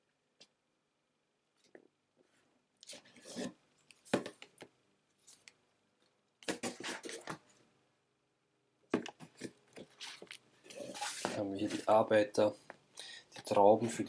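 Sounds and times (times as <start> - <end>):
cardboard scraping and rustling: 9.3 - 12.0.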